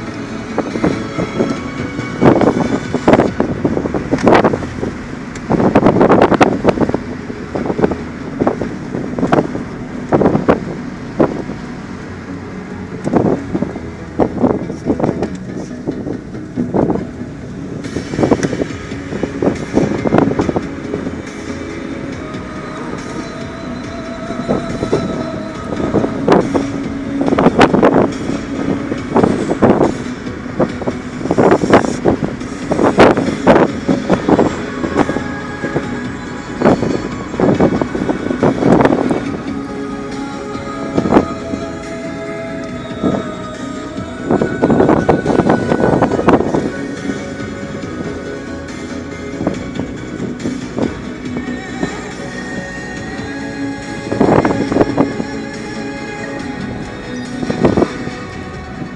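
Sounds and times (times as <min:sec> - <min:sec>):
car road noise: 0:00.0 - 0:58.9
wind buffeting microphone: 0:00.0 - 0:58.9.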